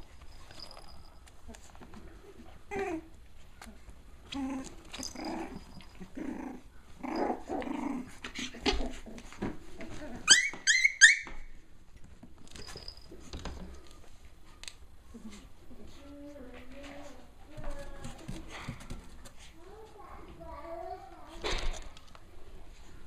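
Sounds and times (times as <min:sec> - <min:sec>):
puppies play-growling: 0:01.5 - 0:10.8
high-pitched puppy yips: 0:10.2 - 0:11.5.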